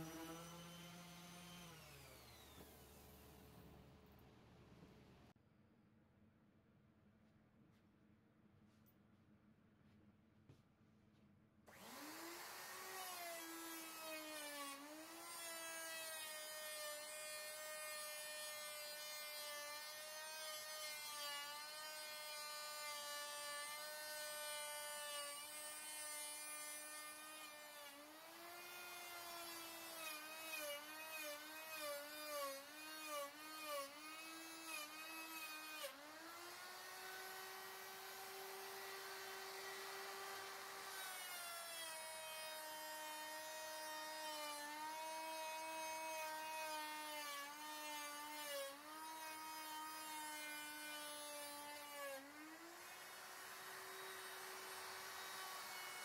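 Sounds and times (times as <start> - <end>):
electric router cutting wood: 0.0 - 3.2, 11.7 - 56.0.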